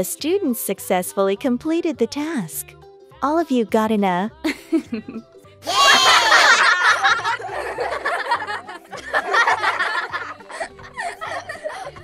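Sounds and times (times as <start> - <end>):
children laughing and giggling: 4.5 - 12.0.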